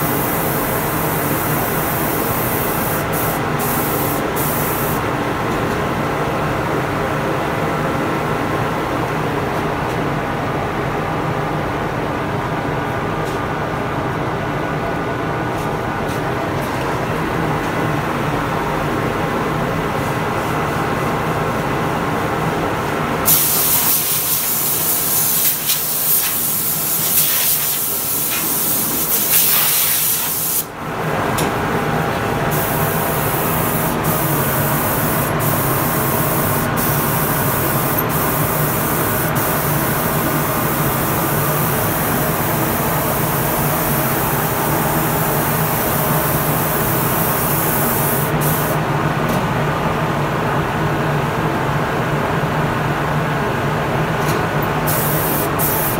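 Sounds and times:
spray gun hissing: 0:00.0 - 0:05.0, 0:23.3 - 0:30.7, 0:32.5 - 0:48.8, 0:54.8 - 0:55.9.

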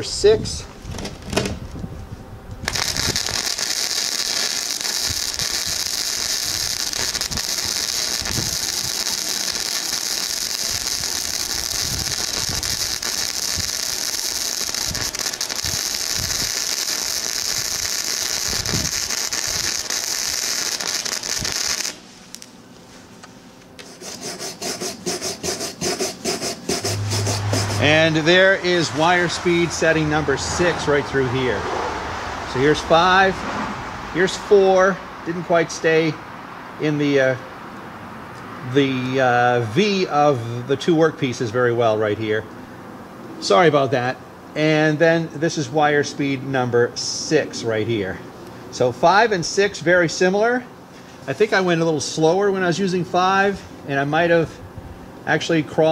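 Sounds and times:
welder arc hissing and crackling: 0:02.6 - 0:22.9, 0:23.7 - 0:30.0
brush scrubbing weld bead: 0:23.8 - 0:28.1.

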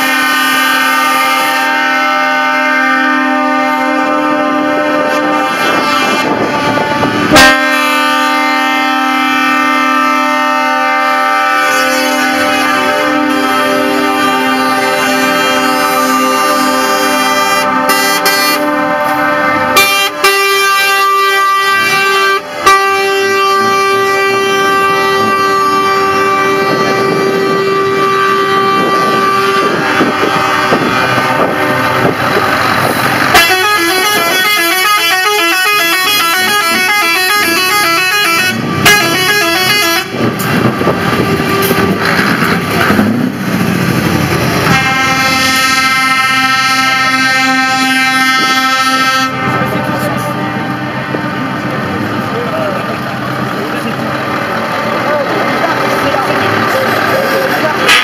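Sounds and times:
truck air horns: 0:00.0 - 0:58.0.

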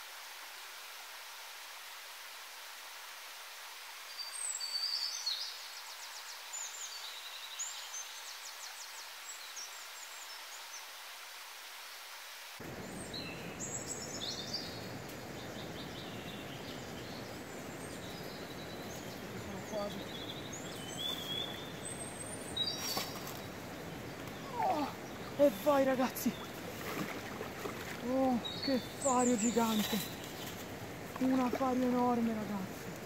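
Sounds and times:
songbirds chirping and trilling: 0:12.6 - 0:33.0
river water rushing: 0:16.0 - 0:33.0.

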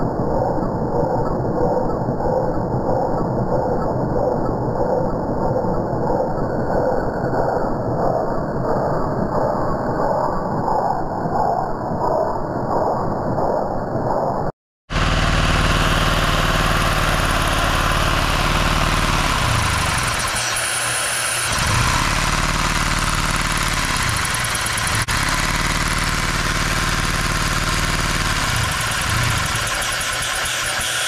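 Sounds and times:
toy engine clattering: 0:15.2 - 0:31.0.

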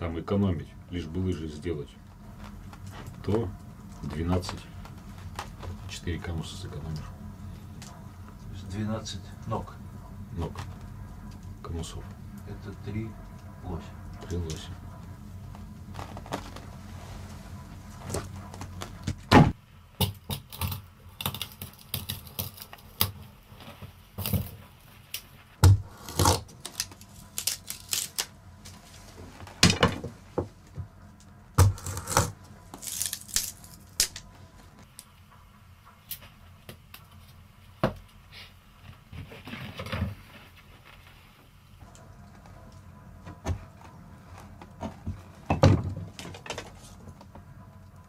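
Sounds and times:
knife scraping wood: 0:25.8 - 0:28.0, 0:31.6 - 0:33.7.

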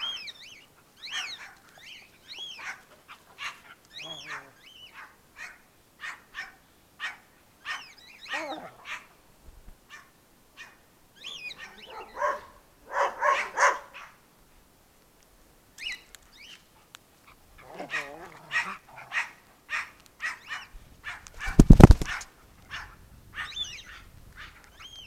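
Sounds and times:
dogs barking: 0:01.0 - 0:01.8, 0:02.4 - 0:09.2, 0:09.9 - 0:10.8, 0:11.4 - 0:14.2, 0:17.6 - 0:24.6
dogs whining: 0:03.4 - 0:04.5, 0:07.7 - 0:09.0, 0:11.4 - 0:13.7, 0:17.6 - 0:19.2.

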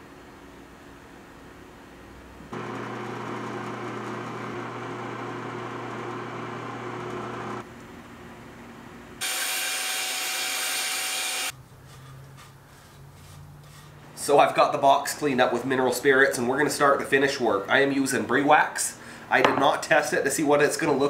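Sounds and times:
power tool motor running: 0:02.5 - 0:07.6, 0:09.2 - 0:11.5
shop vacuum running: 0:02.5 - 0:07.7, 0:09.2 - 0:11.5.

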